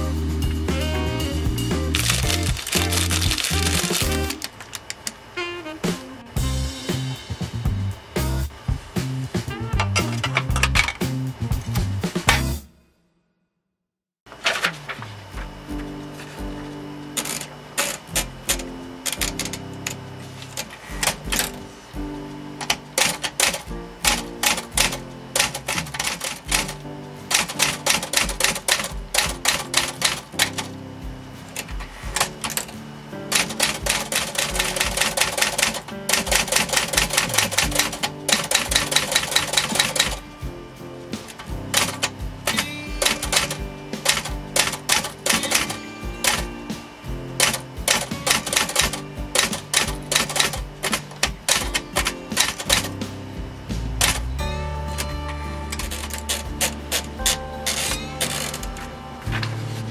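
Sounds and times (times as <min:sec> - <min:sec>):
background music: 0:00.0 - 0:04.6, 0:05.3 - 0:12.9, 0:15.2 - 0:59.9
typewriter key strikes: 0:17.2 - 0:19.6, 0:22.6 - 0:30.7, 0:33.3 - 0:40.2, 0:41.7 - 0:46.5, 0:47.4 - 0:53.0.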